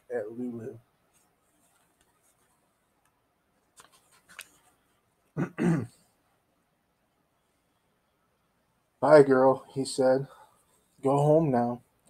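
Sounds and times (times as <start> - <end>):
man clearing throat: 5.4 - 6.0.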